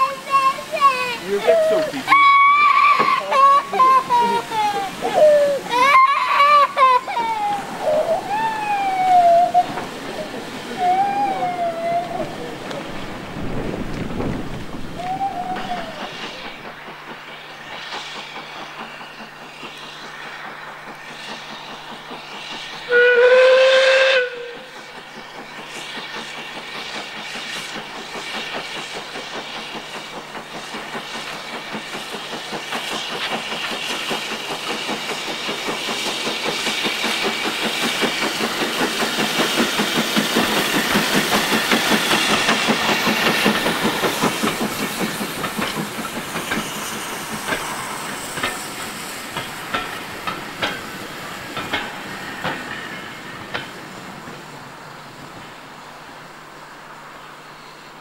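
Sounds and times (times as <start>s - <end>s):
steam locomotive exhaust beats: 0.0s - 58.0s
train wheels clicking over rail joints: 0.0s - 58.0s
steam locomotive whistle: 1.6s - 3.6s, 22.8s - 24.8s.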